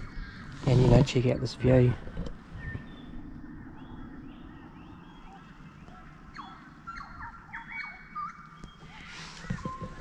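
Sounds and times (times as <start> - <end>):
birds chirping: 0.0 - 10.0
whistled bird notes: 2.6 - 10.0.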